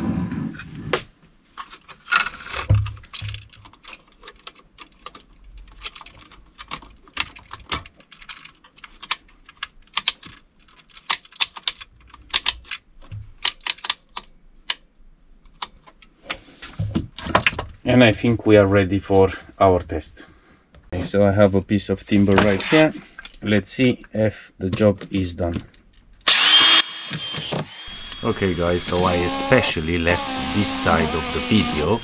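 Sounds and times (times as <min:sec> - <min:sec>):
plastic and metal clicks and rattles: 0:01.6 - 0:16.2.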